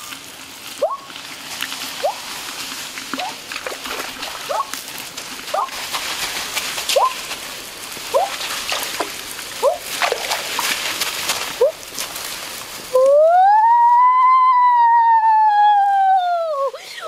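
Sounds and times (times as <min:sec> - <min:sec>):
water splashing from wading: 0:08.1 - 0:11.0.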